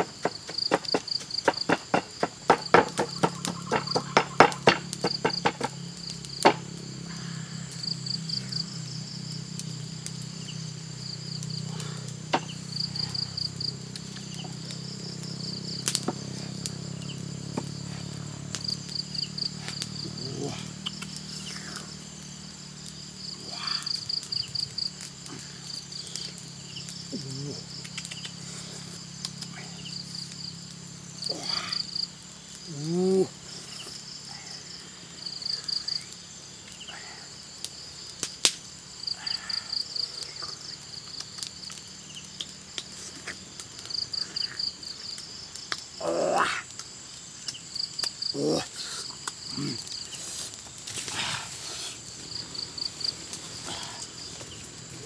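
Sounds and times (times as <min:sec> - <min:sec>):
pestle pounding in mortar: 0:00.0 - 0:05.7
insects chirping trills: 0:00.0 - 0:55.0.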